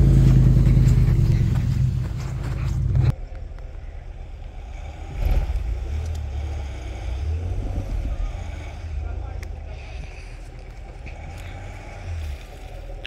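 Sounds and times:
loud low engine sound: 0:00.0 - 0:03.1, 0:04.0 - 0:13.0
truck engine rumble: 0:00.0 - 0:13.0.

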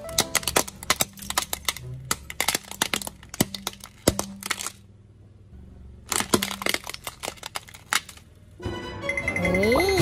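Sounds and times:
toy car cracking under tyre: 0:00.0 - 0:04.8, 0:06.1 - 0:08.3.

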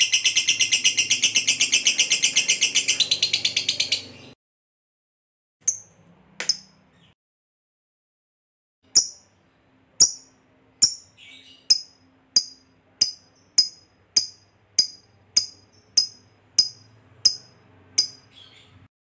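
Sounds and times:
bird high ticking calls: 0:00.0 - 0:04.4, 0:10.0 - 0:18.9
soft bird chatter: 0:00.0 - 0:04.4, 0:11.1 - 0:12.0, 0:18.0 - 0:18.9.

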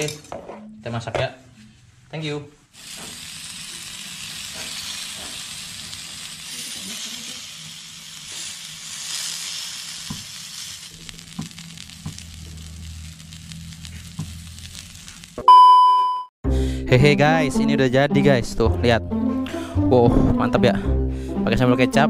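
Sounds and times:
meat sizzling on a griddle: 0:02.8 - 0:15.4.

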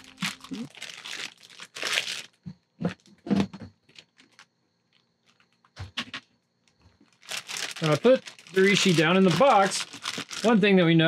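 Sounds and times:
plastic bag crinkling: 0:00.0 - 0:02.5, 0:03.9 - 0:05.6, 0:07.0 - 0:10.7.

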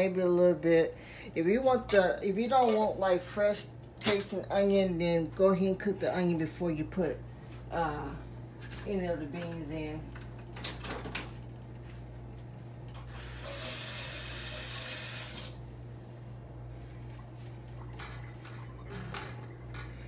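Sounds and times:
kitchen faucet running: 0:13.0 - 0:15.6.

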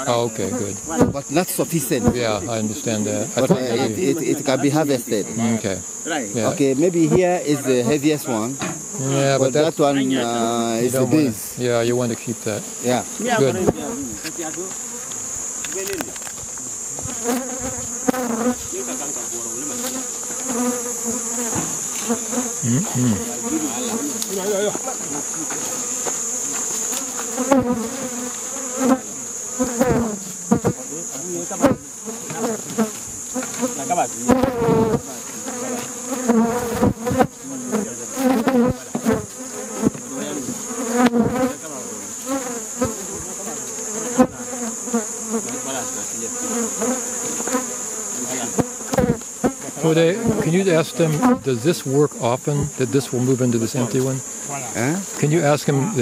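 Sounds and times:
bees buzzing: 0:00.0 - 0:56.0
knocks from hive handling: 0:00.9 - 0:01.3, 0:08.5 - 0:09.0, 0:13.5 - 0:18.6, 0:21.4 - 0:22.2, 0:31.6 - 0:37.4, 0:38.2 - 0:41.5, 0:48.5 - 0:50.5.

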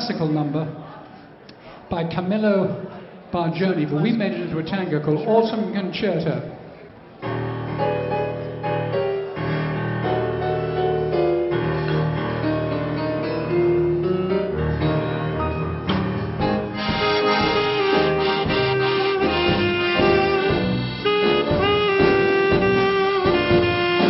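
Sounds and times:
dance band playing tango: 0:07.2 - 0:24.0
piano: 0:07.2 - 0:24.0
accordion melody: 0:16.4 - 0:24.0.

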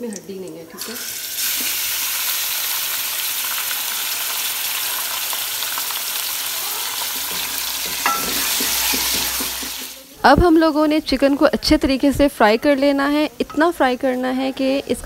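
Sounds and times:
chicken sizzling in hot oil: 0:00.0 - 0:10.5
wooden spatula scraping metal pan: 0:07.1 - 0:10.0.

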